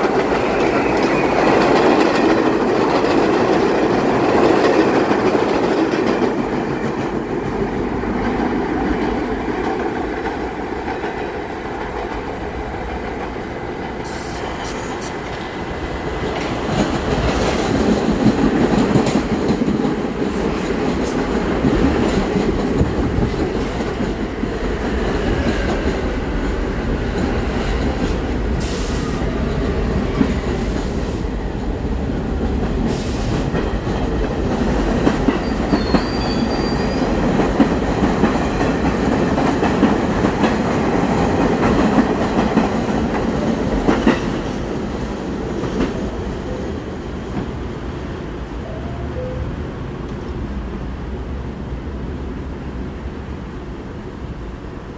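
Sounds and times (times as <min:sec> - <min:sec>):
train wheels rumbling on rails: 0:00.0 - 0:54.9
faint wheel squeal: 0:35.4 - 0:37.1.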